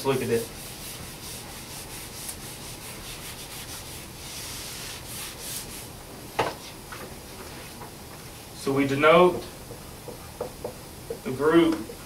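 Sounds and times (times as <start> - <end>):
eraser rubbing on whiteboard: 0.2 - 5.9.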